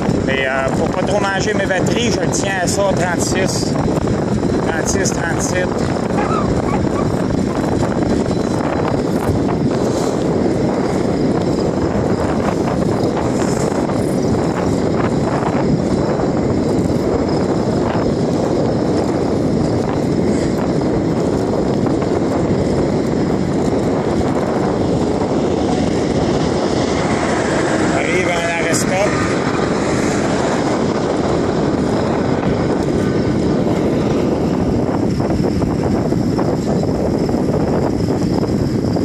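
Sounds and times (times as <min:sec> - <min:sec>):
bicycle rolling on asphalt: 0:00.0 - 0:39.0
wind rush over microphone: 0:00.0 - 0:39.0.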